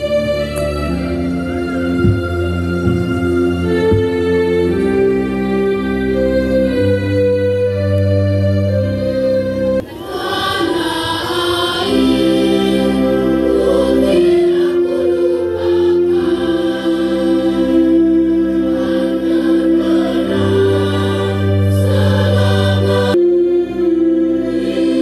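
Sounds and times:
electronic keyboard chords: 0.1s - 9.9s
choir singing in unison: 9.8s - 25.0s.

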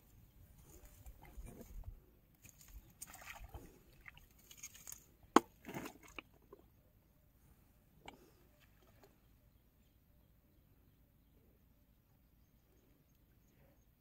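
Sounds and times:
water sloshing and rustling: 0.0s - 6.8s, 7.5s - 9.4s.

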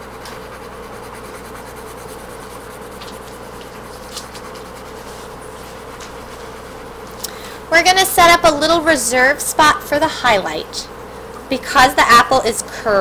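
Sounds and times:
pencil scratching on paper: 0.0s - 7.0s
background hum: 0.0s - 13.0s.

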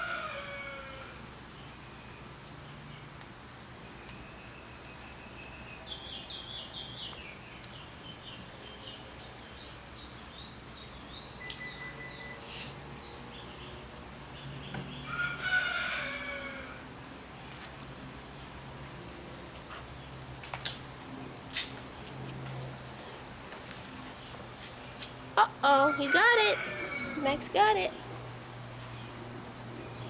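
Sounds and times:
birds chirping: 1.5s - 15.2s.

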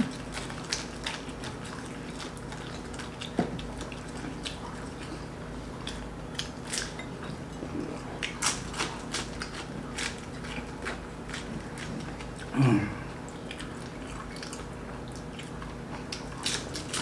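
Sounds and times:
crunchy chewing: 0.0s - 17.0s.

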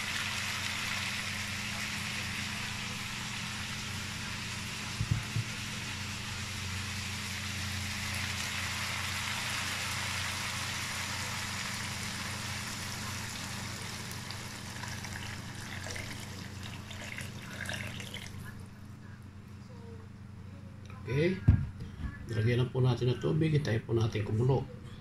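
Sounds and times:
water pouring into a wok: 7.9s - 18.4s.

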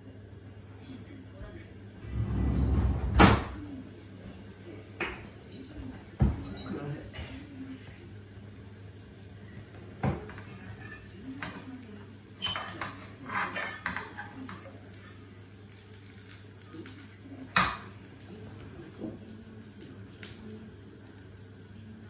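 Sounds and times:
metal spoon scraping frying pan: 10.3s - 11.6s, 12.4s - 14.6s.

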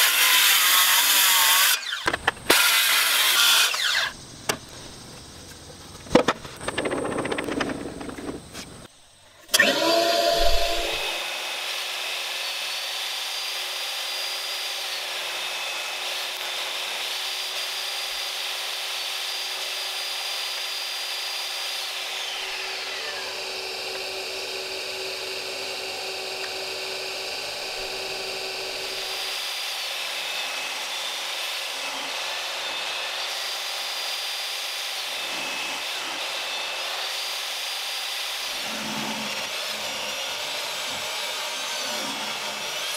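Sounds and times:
table saw cutting wood: 0.0s - 4.2s, 9.4s - 42.9s
shop vacuum running: 9.5s - 11.4s, 22.2s - 30.7s.

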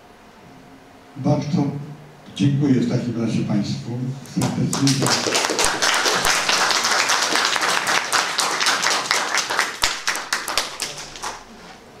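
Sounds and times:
audience applauding: 4.4s - 11.5s.

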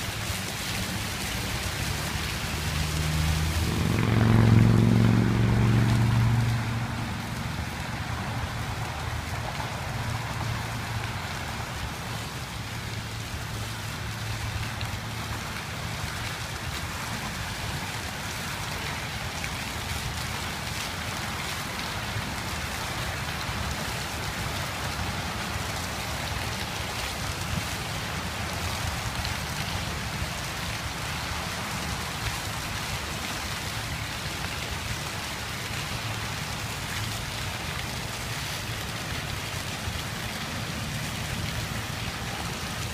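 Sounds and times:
fountain water splashing: 0.0s - 42.9s.

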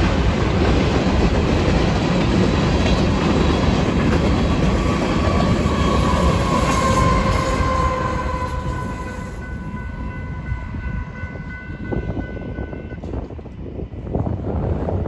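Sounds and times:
freight train rolling past: 0.0s - 15.0s
steady high tone: 5.0s - 13.1s.

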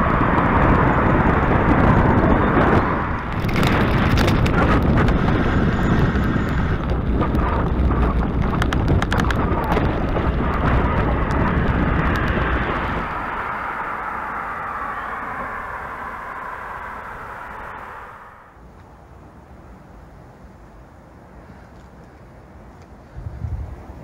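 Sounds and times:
wind buffeting microphone: 0.0s - 20.3s, 22.2s - 24.0s
clicks and crackles: 3.1s - 5.3s, 6.0s - 12.6s.

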